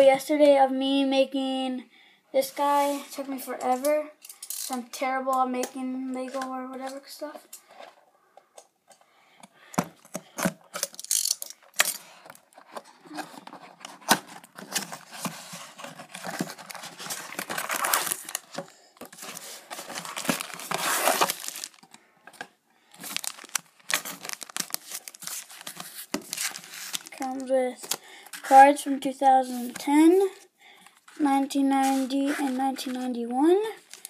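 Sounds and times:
plastic wrap crinkling: 0:10.2 - 0:28.6, 0:33.7 - 0:34.0
cardboard box tearing: 0:13.0 - 0:18.5, 0:19.1 - 0:21.8, 0:23.0 - 0:27.1.

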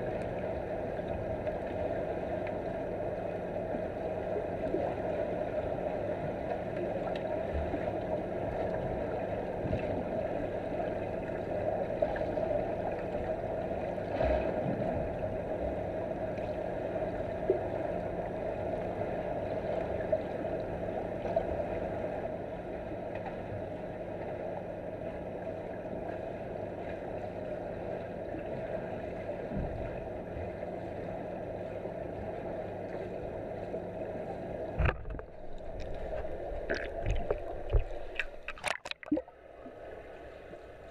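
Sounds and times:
low hum: 0:32.9 - 0:40.9
muffled underwater rush: 0:33.2 - 0:40.9.

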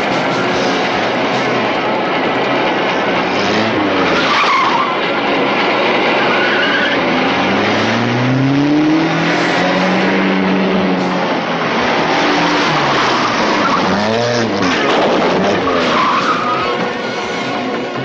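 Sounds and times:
engines driven hard: 0:00.0 - 0:18.0
engine revving up: 0:03.0 - 0:04.8, 0:05.4 - 0:16.0.

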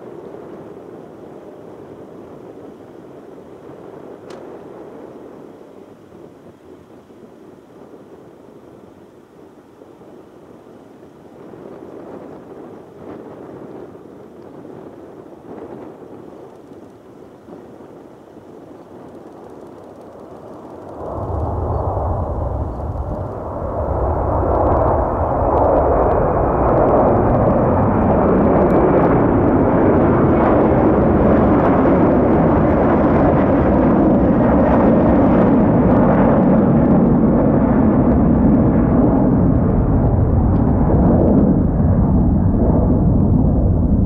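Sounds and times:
jet engine noise: 0:00.0 - 0:44.0.

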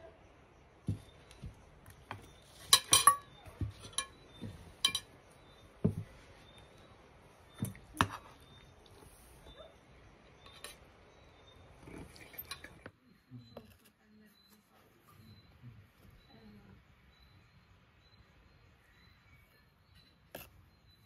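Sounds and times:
plates and fork clinking: 0:02.6 - 0:05.1.

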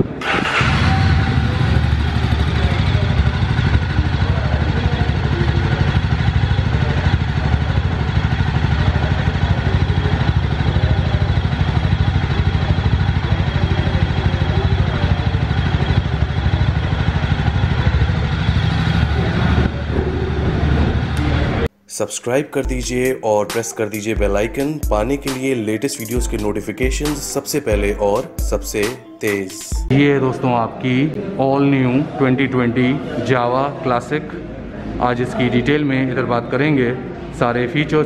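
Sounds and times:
motorcycle engine idling: 0:00.2 - 0:21.7.

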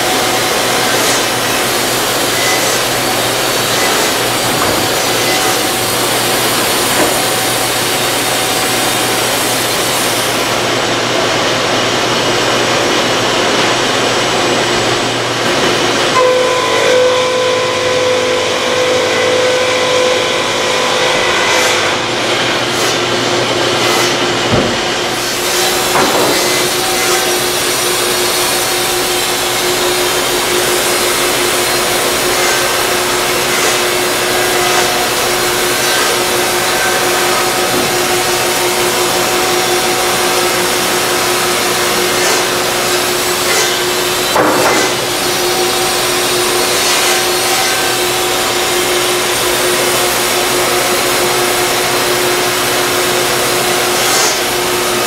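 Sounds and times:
shop machinery running: 0:00.0 - 0:55.0.

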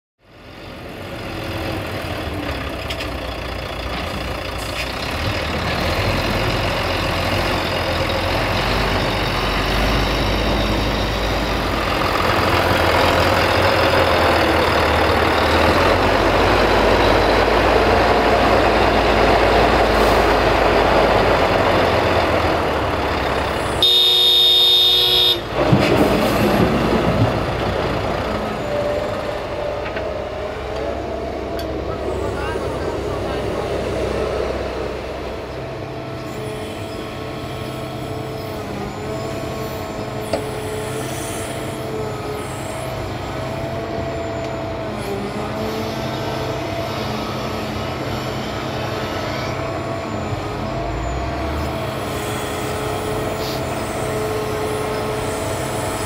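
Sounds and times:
diesel engines running: 0:00.2 - 0:56.0
vehicle horn: 0:23.7 - 0:25.6.

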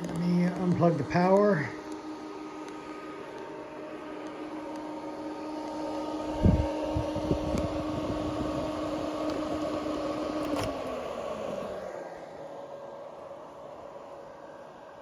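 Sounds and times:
cooling fans humming: 0:00.0 - 0:15.0
plug pulled click: 0:10.4 - 0:10.8.

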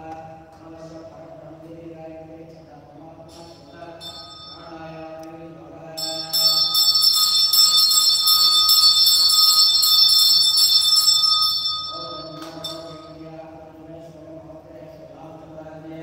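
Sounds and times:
hand bell ringing rapidly: 0:04.0 - 0:04.7, 0:06.0 - 0:13.2.

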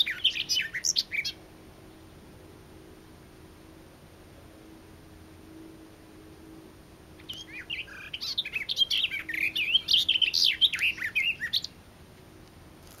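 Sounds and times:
warbler singing: 0:00.0 - 0:02.2, 0:06.4 - 0:11.8.

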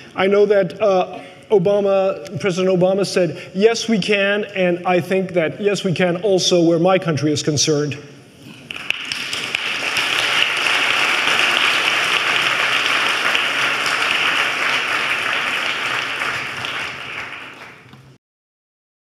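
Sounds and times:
audience applause: 0:08.7 - 0:18.2.

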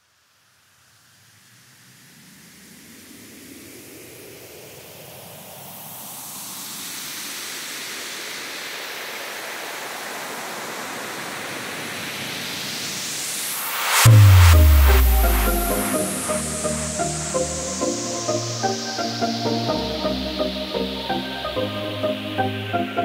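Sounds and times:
white-noise riser hiss: 0:12.2 - 0:21.5.

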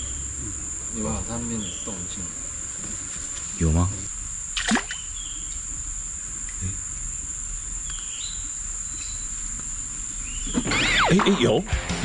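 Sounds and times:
insects droning: 0:00.0 - 0:12.0
brief falling-pitched sound: 0:10.7 - 0:11.6.

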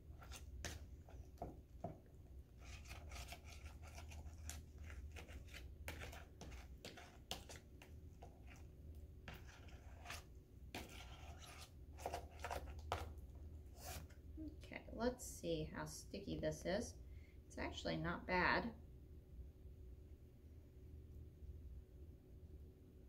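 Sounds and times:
slime being stirred wet scraping: 0:00.0 - 0:14.2.

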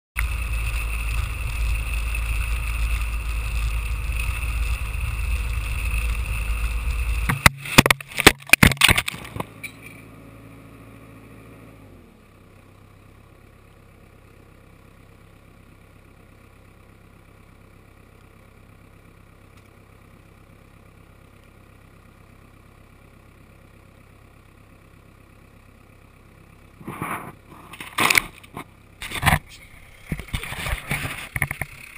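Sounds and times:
camera knocking and scraping on ground: 0:00.2 - 0:10.0, 0:26.8 - 0:31.9
engine idling: 0:00.2 - 0:31.9
snowcat engine and tracks running: 0:00.2 - 0:31.9
camera handling bumps and rustling: 0:07.3 - 0:10.0, 0:26.8 - 0:31.9.

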